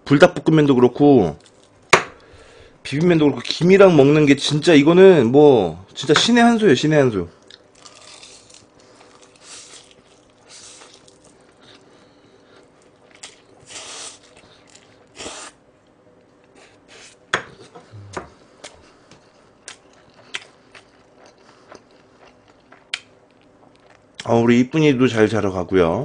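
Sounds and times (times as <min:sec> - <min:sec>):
noodles being slurped: 0:07.8 - 0:11.9, 0:12.6 - 0:15.6.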